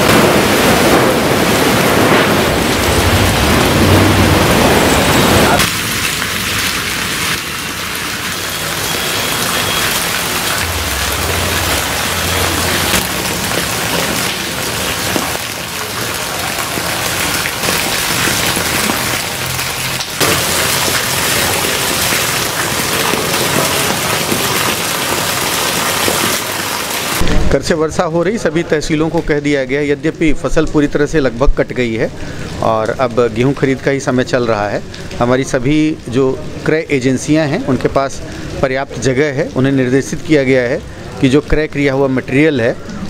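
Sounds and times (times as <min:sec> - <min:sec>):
heavy rain on wet road: 0:00.0 - 0:43.0.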